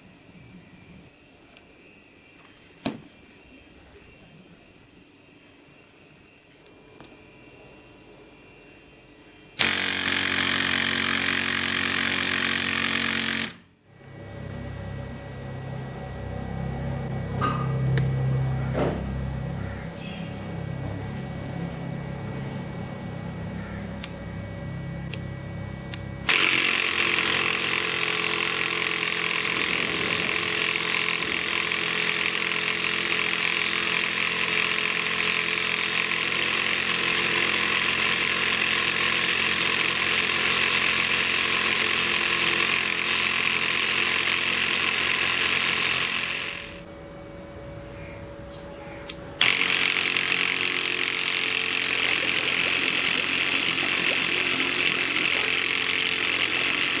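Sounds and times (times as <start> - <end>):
small electric motor running: 9.6 - 15.2, 25.9 - 46.9, 49.4 - 57.0.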